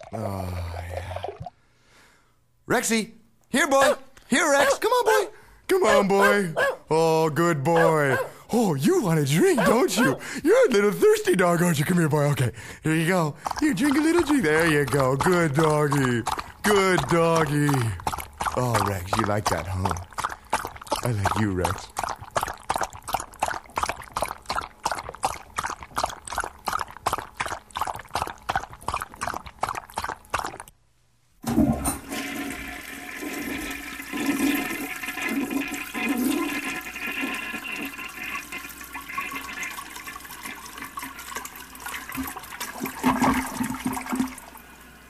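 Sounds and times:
dog lapping liquid: 7.7 - 30.8, 31.5 - 44.4
toilet flushing: 8.9 - 22.2, 31.4 - 45.0.

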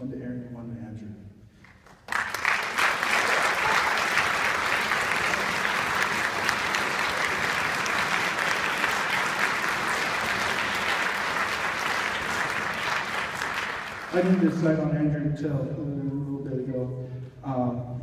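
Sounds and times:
audience applauding: 1.7 - 14.7.

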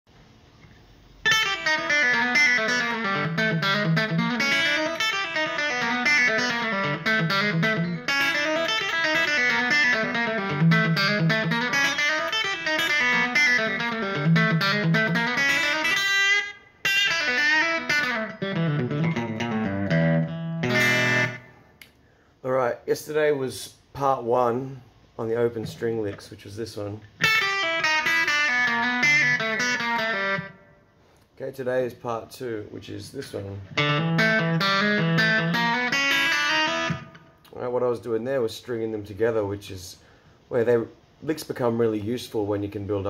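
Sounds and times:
electric guitar licks: 1.2 - 22.0, 27.0 - 31.3, 33.6 - 37.6.

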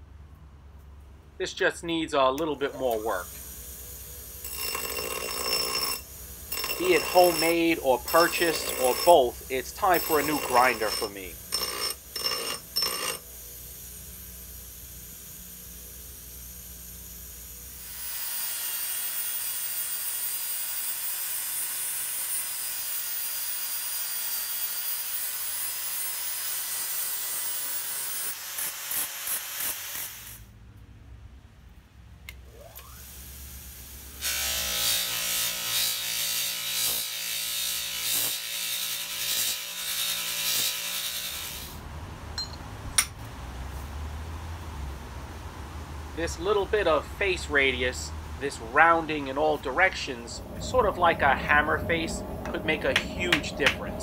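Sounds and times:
angle grinder grinding steel: 2.7 - 13.3, 34.2 - 41.8.

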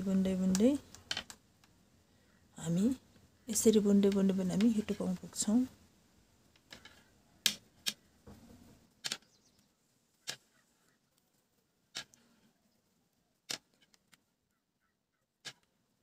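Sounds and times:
knitting needles clicking: 0.0 - 1.8, 2.8 - 5.6, 6.5 - 8.0, 11.9 - 12.4, 15.4 - 15.7.

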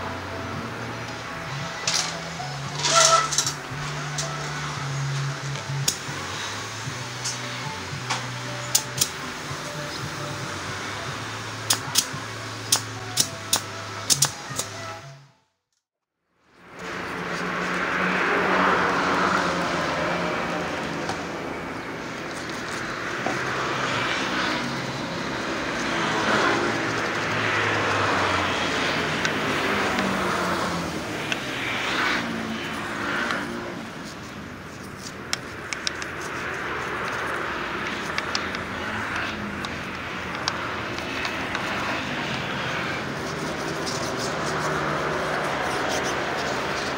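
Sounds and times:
road traffic passing: 0.0 - 46.9.

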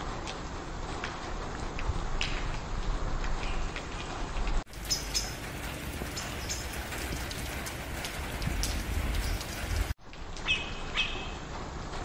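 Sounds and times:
wind rumbling on microphone: 0.0 - 11.1
high bird chirps: 4.8 - 5.4, 10.4 - 11.4.

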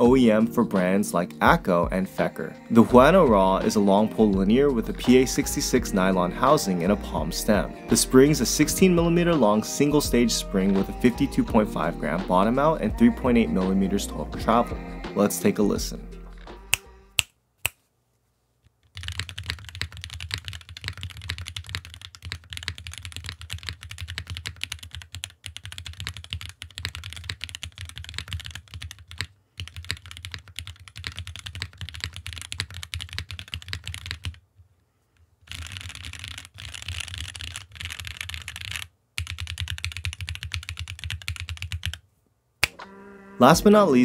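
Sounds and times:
fast mechanical keyboard typing: 18.9 - 34.4, 35.5 - 42.0.

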